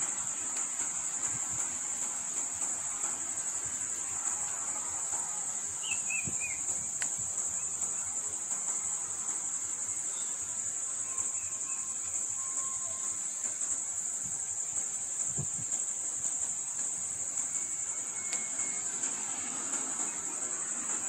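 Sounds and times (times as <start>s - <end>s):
insects shrilling drone: 0.0s - 21.0s.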